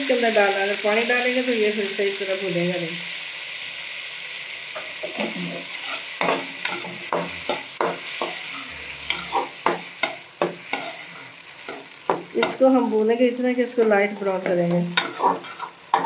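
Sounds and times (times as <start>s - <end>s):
food sizzling in hot oil: 0.0s - 16.0s
metal spoon scraping pan: 4.8s - 12.7s, 13.7s - 16.0s.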